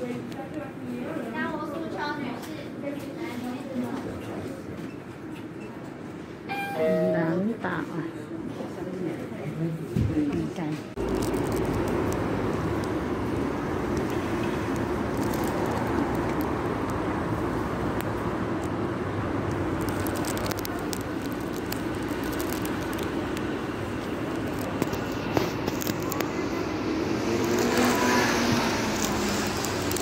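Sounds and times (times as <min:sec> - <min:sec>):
street traffic noise: 0:00.0 - 0:30.0
approaching vehicle: 0:21.8 - 0:30.0.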